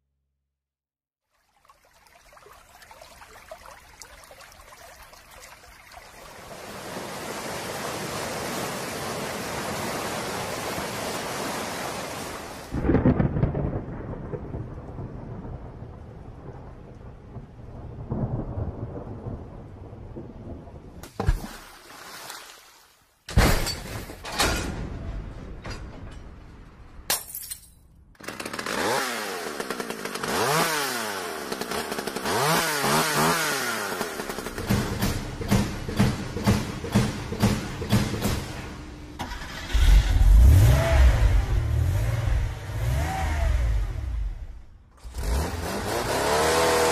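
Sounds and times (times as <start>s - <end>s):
sharp thunder crack: 12.7s - 20.9s
rumbling thunderclap: 12.7s - 21.0s.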